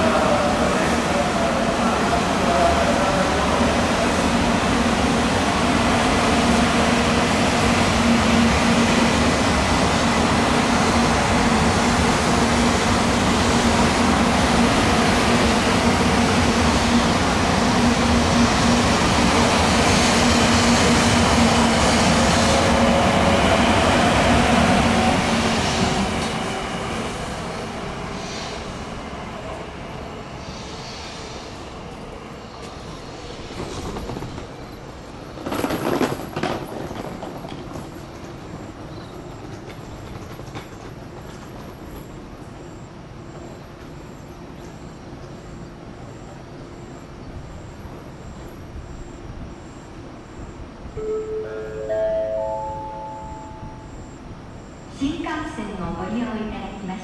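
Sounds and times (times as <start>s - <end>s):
train rumbling past: 0.0s - 57.0s.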